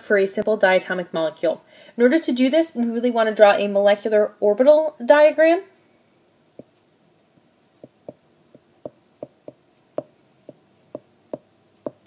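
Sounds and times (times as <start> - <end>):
stylus tapping on tablet screen: 6.6 - 6.8, 7.8 - 12.0.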